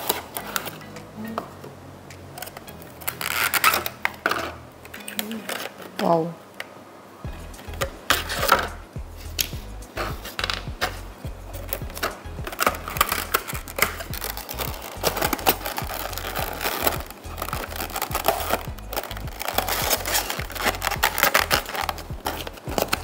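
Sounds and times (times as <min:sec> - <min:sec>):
background music: 0:00.0 - 0:06.4, 0:07.2 - 0:23.0
plastic packaging crinkling: 0:02.4 - 0:04.3, 0:11.9 - 0:23.0.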